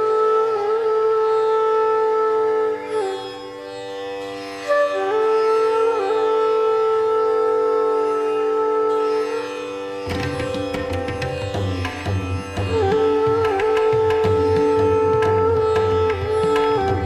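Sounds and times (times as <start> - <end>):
plucked-string melody: 9.0 - 17.0.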